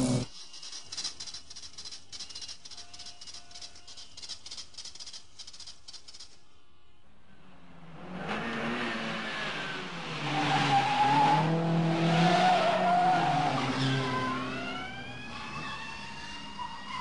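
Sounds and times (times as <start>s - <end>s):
car engines revving: 7.3s - 17.0s.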